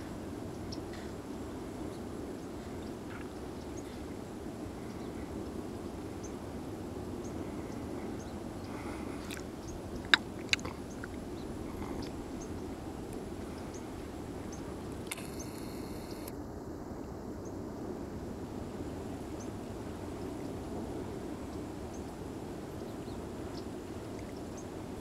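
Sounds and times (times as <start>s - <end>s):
low outdoor background noise: 0.0s - 25.0s
sharp clicks: 15.0s - 16.3s.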